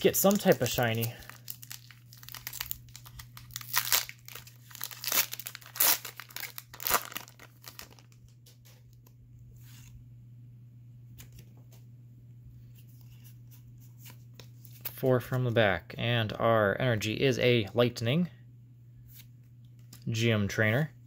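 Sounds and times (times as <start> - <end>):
foil wrapper ripping and crinkling: 0.0 - 8.2
handling cards: 0.0 - 10.0.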